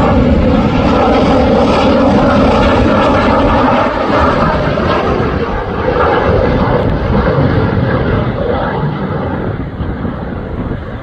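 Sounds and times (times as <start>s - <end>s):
jet engine rushing overhead: 0.0s - 11.0s.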